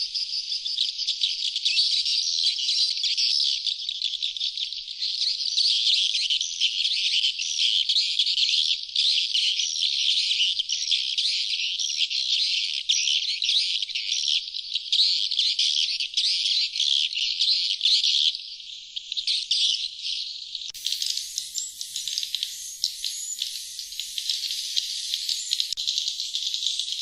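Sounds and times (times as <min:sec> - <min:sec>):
swiftlets twittering: 0:20.7 - 0:27.0.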